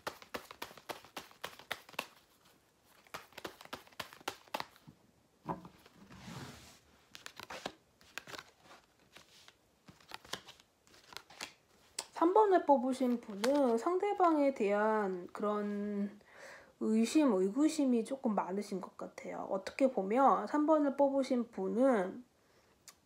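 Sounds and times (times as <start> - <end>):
cards being shuffled: 0.0 - 4.9, 7.1 - 12.2, 12.9 - 14.4.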